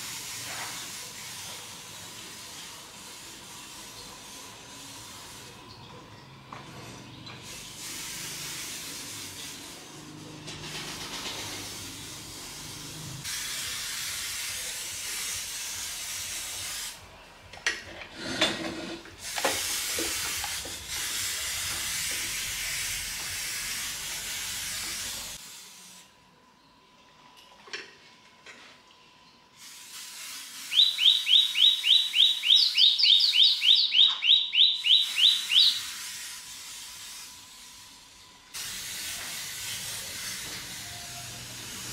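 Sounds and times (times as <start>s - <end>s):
spray hissing: 0.0s - 5.6s, 7.4s - 17.1s, 19.2s - 26.1s, 29.6s - 32.6s, 34.8s - 41.9s.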